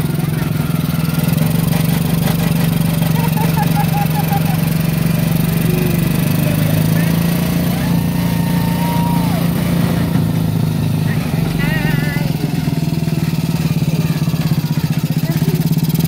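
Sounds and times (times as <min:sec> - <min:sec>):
small ride car engine droning: 0:00.0 - 0:16.0.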